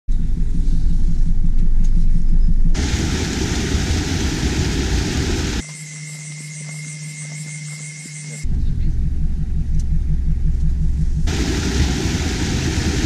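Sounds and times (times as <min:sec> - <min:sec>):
stream rushing over rocks: 0:02.8 - 0:05.6, 0:11.3 - 0:13.0.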